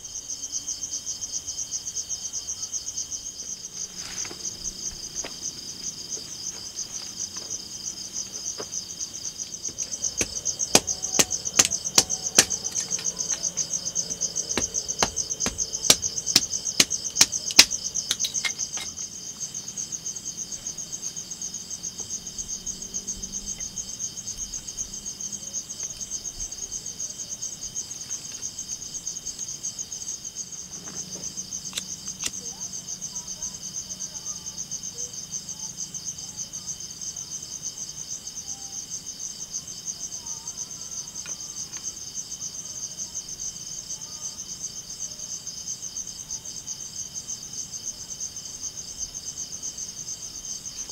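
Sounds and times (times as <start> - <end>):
crickets chirring: 0.0 - 50.9
blade striking wood: 9.7 - 13.6, 14.4 - 19.0.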